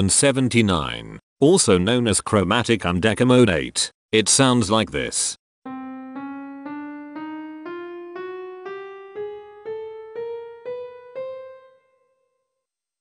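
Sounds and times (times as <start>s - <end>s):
piano playing ascending scale: 5.7s - 12.3s.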